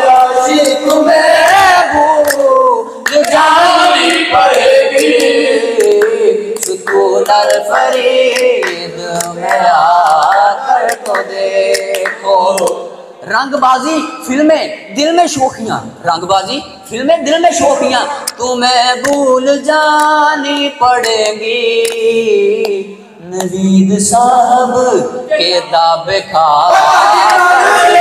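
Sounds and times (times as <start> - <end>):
young men singing in chorus: 0.0 - 13.2, 17.3 - 28.0
handclaps keeping time: 0.5 - 3.5, 4.4 - 12.8, 19.0 - 19.3, 19.9 - 22.8.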